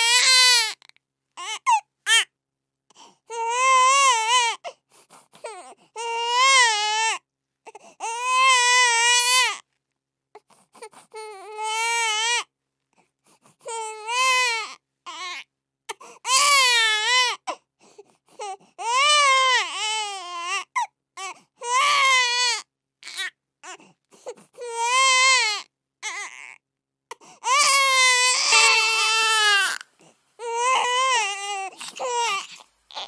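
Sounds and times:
baby crying: 0:00.0 - 0:00.8, 0:01.4 - 0:02.3, 0:03.3 - 0:04.7, 0:05.4 - 0:09.6, 0:11.1 - 0:12.5, 0:13.6 - 0:15.5, 0:16.2 - 0:17.6, 0:18.4 - 0:23.8, 0:24.5 - 0:26.6, 0:27.4 - 0:33.0
baby gasping for breath: 0:31.7 - 0:32.7.

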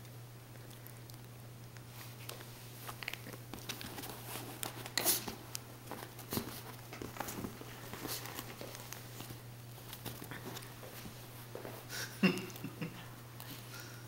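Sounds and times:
puppy scuffling with toy: 0:01.9 - 0:11.9.

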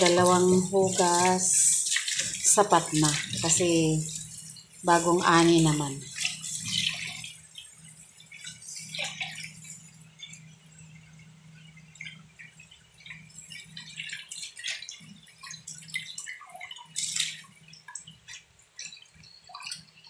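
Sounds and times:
tap water pouring into pot: 0:00.0 - 0:20.0
water splashes and drips: 0:00.0 - 0:20.0.

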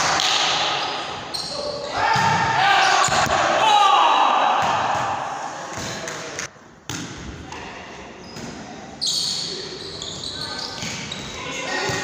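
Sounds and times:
players shouting: 0:01.7 - 0:05.4.

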